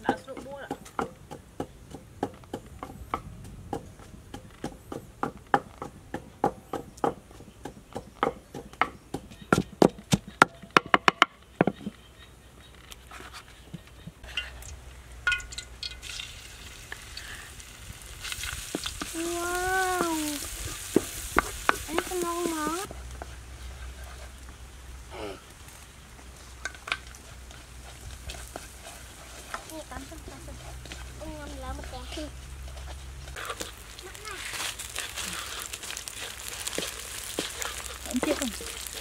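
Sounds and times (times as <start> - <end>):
pestle pounding in mortar: 0.0 - 11.8
paste sizzling in hot oil: 14.3 - 39.0
wooden spatula stirring in wok: 15.3 - 25.0, 25.7 - 39.0.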